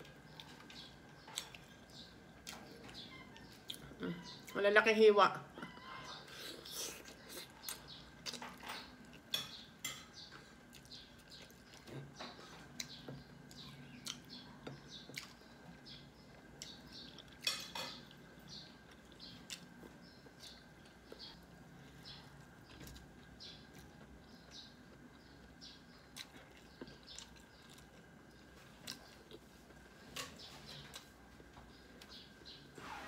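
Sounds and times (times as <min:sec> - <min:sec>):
faint steady hum: 0:00.0 - 0:33.0
person chewing and lip smacking: 0:12.8 - 0:15.4.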